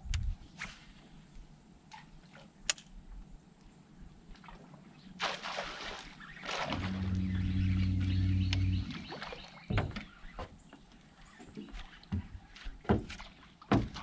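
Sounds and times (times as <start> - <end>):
electric trolling motor humming: 6.6 - 9.2.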